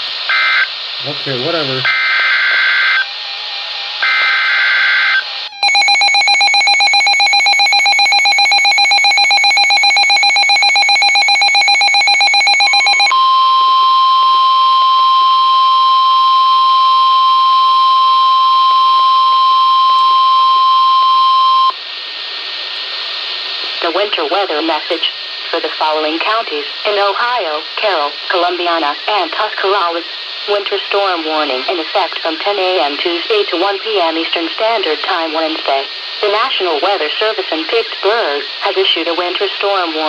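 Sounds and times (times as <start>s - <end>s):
radio hiss: 0.0s - 3.0s, 21.8s - 40.0s
steady warning alarm tone: 4.0s - 21.8s
rapid pulsing electronic beep: 5.6s - 13.1s.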